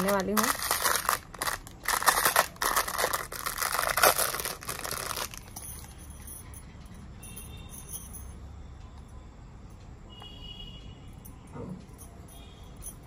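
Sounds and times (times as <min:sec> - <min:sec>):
plastic bag crinkling: 0:00.0 - 0:05.6
faint high ringing: 0:05.6 - 0:13.0.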